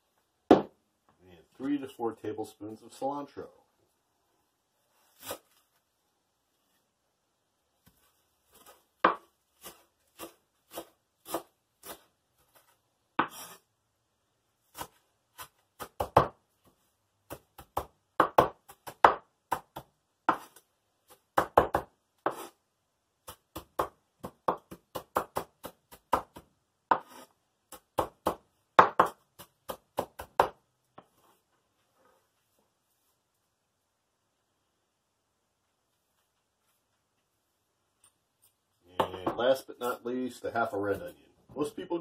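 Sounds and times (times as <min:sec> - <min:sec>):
knife chopping on wooden board: 0:09.0 - 0:12.0, 0:13.2 - 0:13.6, 0:14.7 - 0:16.4, 0:17.3 - 0:20.6, 0:21.3 - 0:22.5, 0:23.3 - 0:30.6.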